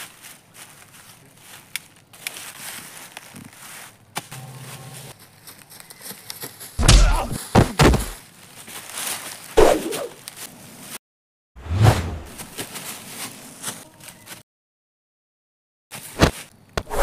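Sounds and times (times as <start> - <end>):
body hitting the ground: 6.8 - 8.2
heavy thumps of blows: 6.8 - 8.2.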